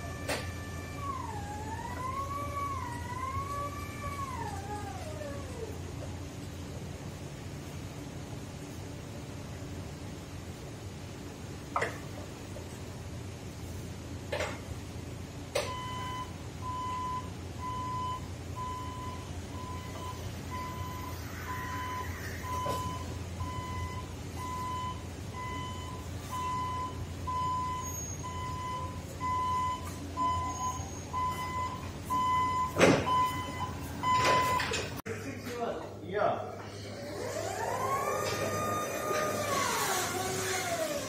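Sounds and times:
truck travel alarm beeping: 15.6 - 35.0.

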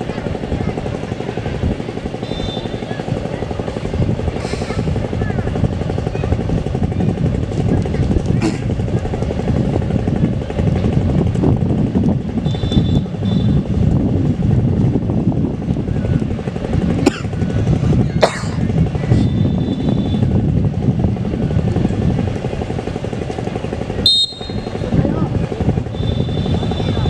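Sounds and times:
wind buffeting microphone: 0.0 - 27.0
high whistle: 2.2 - 2.8, 24.0 - 24.8.

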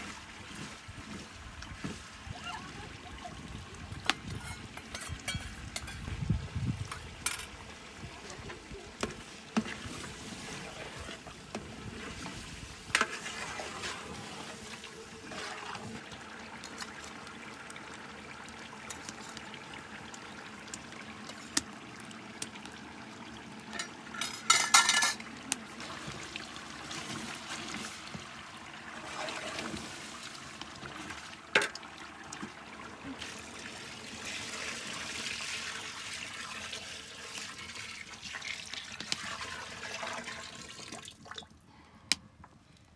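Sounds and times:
spoon clinking against metal pot: 4.4 - 6.0
water pouring into pot: 9.2 - 41.5.

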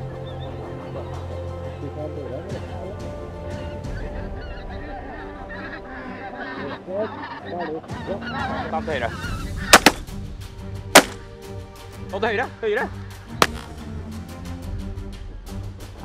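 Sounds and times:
geese honking: 2.8 - 10.1
shotgun shots: 9.7 - 10.1, 11.0 - 11.2.

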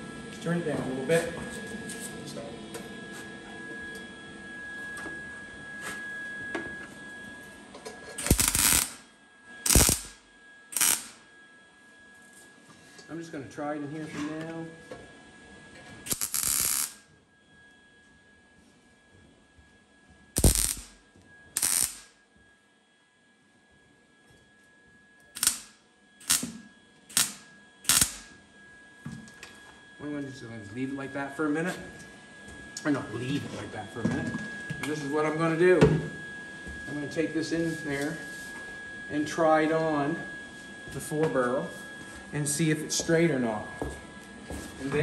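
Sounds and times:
welder arc crackling: 8.2 - 11.2, 16.1 - 17.0, 20.4 - 21.0, 21.6 - 22.2, 25.4 - 28.4.

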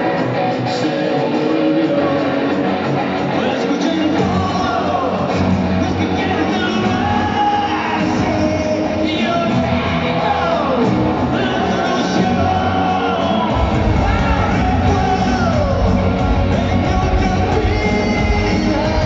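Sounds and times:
audience yelling along: 0.0 - 19.0
pop music over pa: 0.0 - 19.0
heavy bass beat: 8.0 - 19.0.

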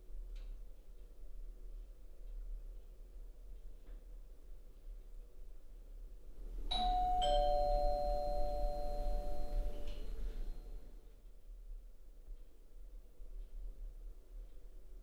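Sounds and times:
two-tone doorbell chime: 6.7 - 10.8.

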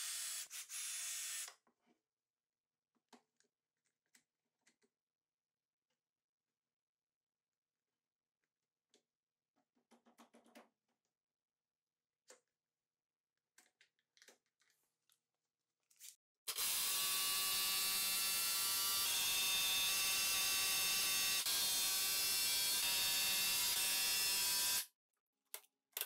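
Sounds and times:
cordless drill drilling into wood: 0.0 - 1.6, 16.5 - 24.8.

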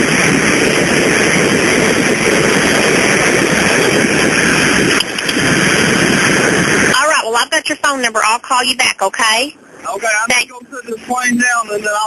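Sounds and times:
small airplane engine drone: 0.0 - 7.0, 9.6 - 12.0.

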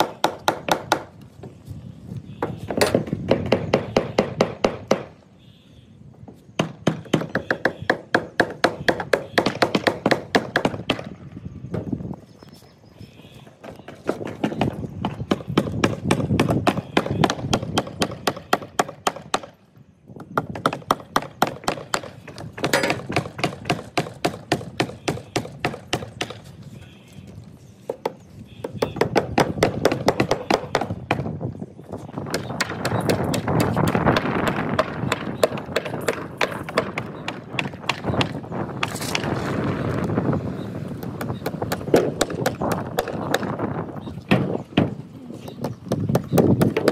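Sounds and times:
hammer driving nails into wood: 20.2 - 26.4, 41.2 - 43.6.

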